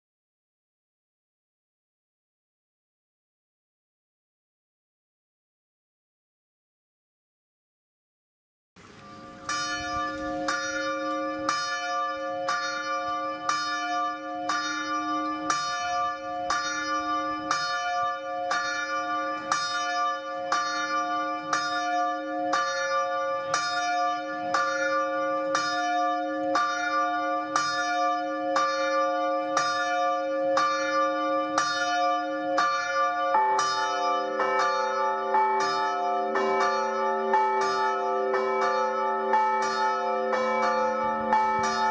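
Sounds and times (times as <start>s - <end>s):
lower-pitched bell ringing: 9.0s - 21.0s
church bell tolling: 9.0s - 41.9s.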